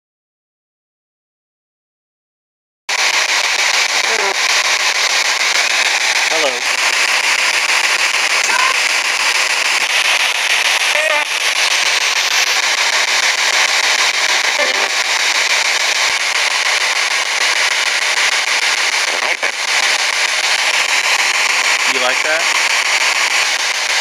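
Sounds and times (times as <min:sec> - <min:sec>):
radio static: 0:02.9 - 0:24.0
voice-like snatches: 0:08.4 - 0:08.8.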